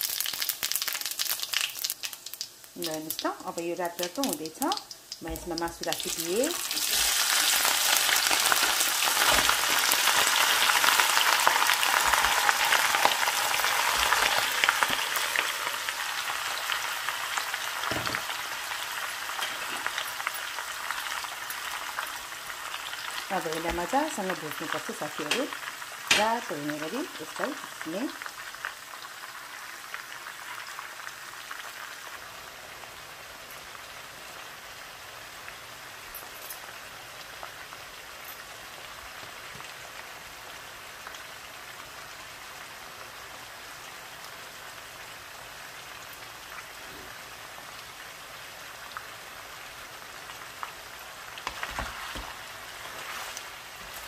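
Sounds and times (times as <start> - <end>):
pork sizzling in oil: 0.0 - 54.0
knocks in pan: 17.8 - 18.4, 26.1 - 26.3.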